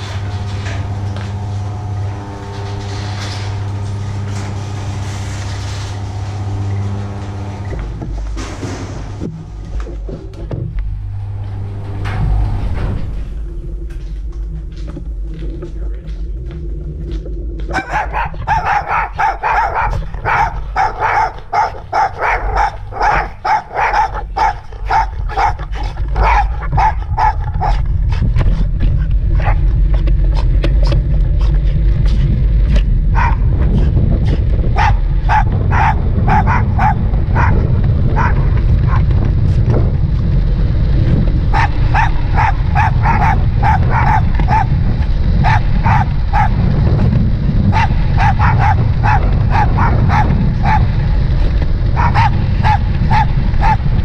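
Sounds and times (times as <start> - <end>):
wind and road noise on microphone: 9.1 - 54.0
small dogs yipping and barking: 17.7 - 27.8, 34.8 - 37.6, 41.5 - 44.8, 45.4 - 46.5.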